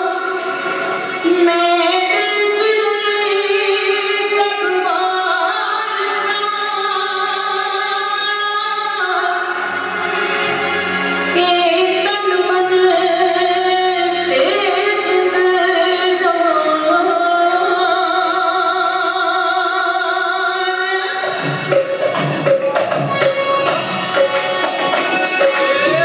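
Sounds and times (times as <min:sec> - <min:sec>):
instrumental backing: 0:21.0 - 0:26.0
drum strikes: 0:21.2 - 0:26.0.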